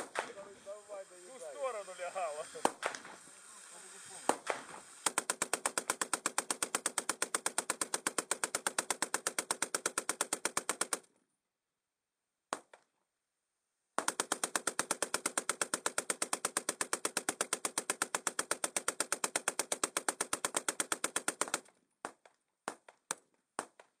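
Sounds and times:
single sharp gunshot reports: 0:00.0 - 0:00.9, 0:02.4 - 0:03.2, 0:04.0 - 0:05.0
machine gun automatic bursts: 0:00.0 - 0:11.1, 0:14.0 - 0:21.7.

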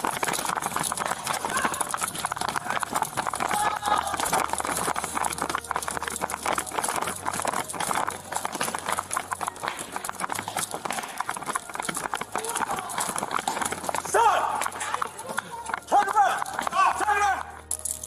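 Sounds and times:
running footsteps on hard floor: 0:00.0 - 0:18.0.

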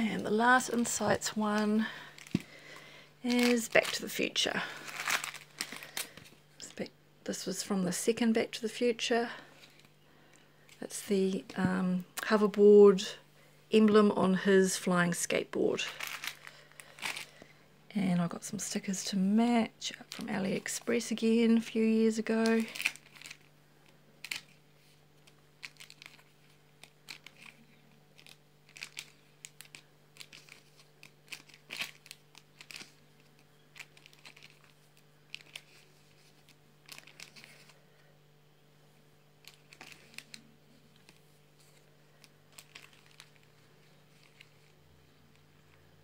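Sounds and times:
vinyl stickers crinkling and rustling: 0:00.0 - 0:06.8, 0:15.2 - 0:17.5, 0:19.8 - 0:38.1, 0:39.4 - 0:46.0
freezer humming: 0:00.0 - 0:07.3.

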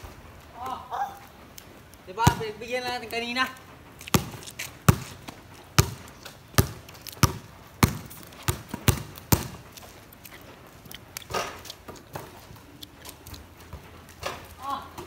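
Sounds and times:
basketball bouncing on concrete: 0:02.1 - 0:03.1, 0:04.1 - 0:09.8.

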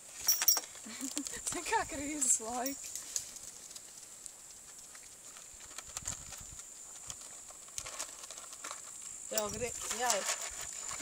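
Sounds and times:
pony chewing food: 0:02.8 - 0:09.0.

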